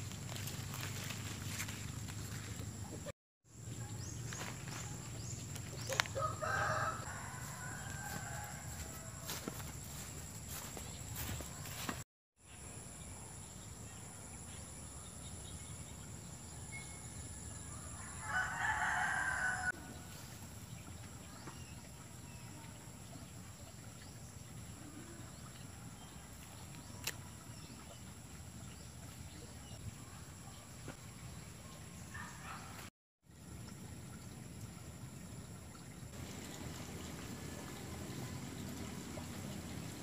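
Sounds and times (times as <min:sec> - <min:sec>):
rooster crowing: 0:05.9 - 0:10.6, 0:17.8 - 0:19.8.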